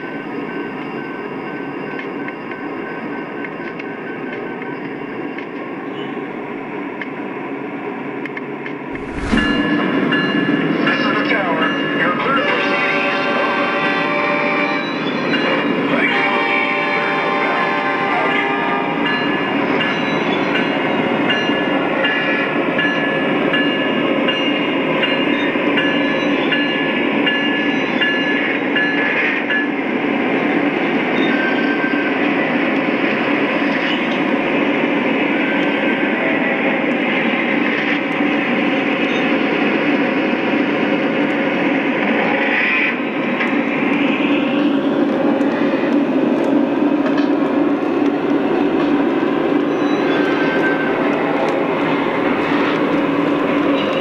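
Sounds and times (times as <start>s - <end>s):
hiss and deep rumble: 8.9s - 10.0s.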